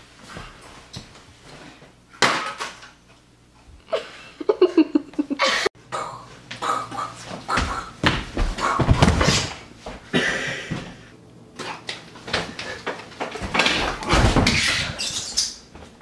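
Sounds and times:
footsteps on hardwood floor: 7.2 - 10.1.

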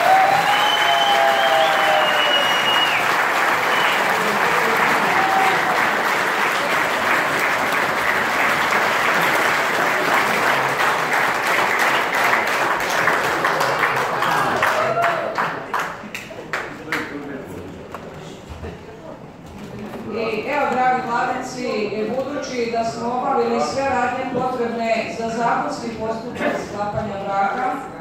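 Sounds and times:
people applauding: 0.0 - 17.4.

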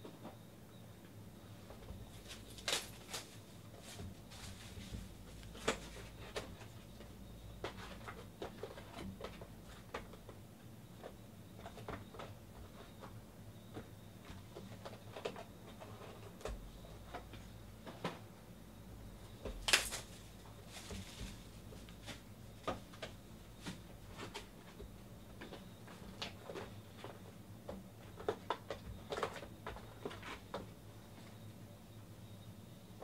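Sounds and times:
cardboard boxes tapping and knocking: 1.7 - 10.4
plastic wrap crinkling: 2.2 - 3.4.

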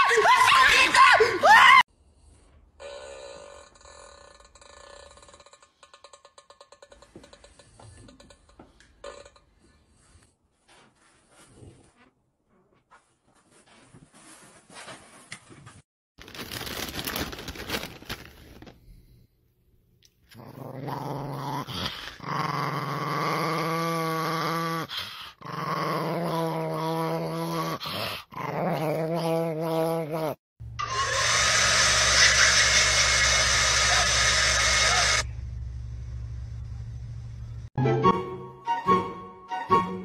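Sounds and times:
small dog growling: 20.3 - 30.4.

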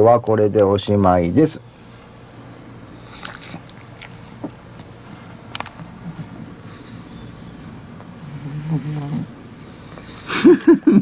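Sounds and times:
dog snuffling: 3.0 - 10.3.

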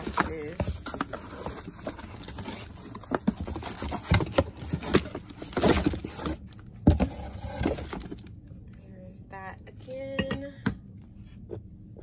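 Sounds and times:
cardboard boxes scraping and rustling: 0.0 - 8.2.

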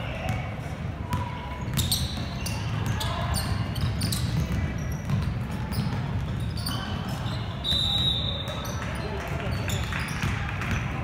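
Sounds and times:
low crowd and hall rumble: 0.0 - 11.0
basketball bouncing on gym floor: 1.1 - 6.6.

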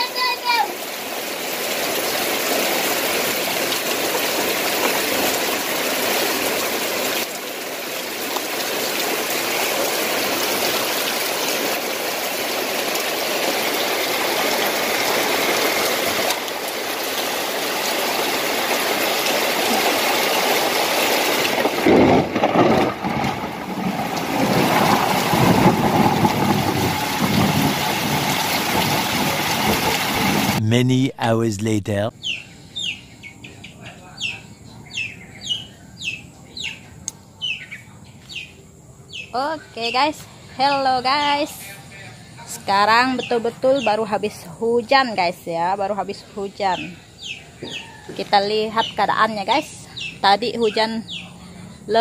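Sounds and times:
heavy rain pouring: 0.0 - 32.1.

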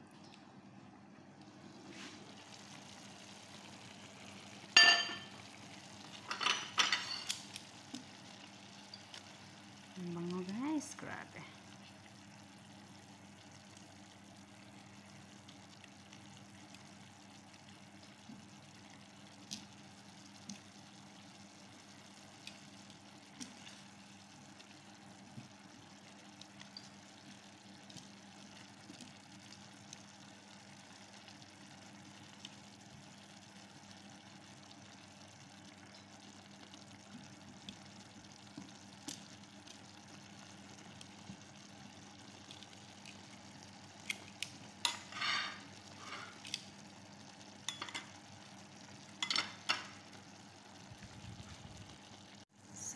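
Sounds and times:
food sizzling in frying pan: 0.6 - 52.9
tongs tapping pan: 4.8 - 5.4, 47.6 - 48.2.

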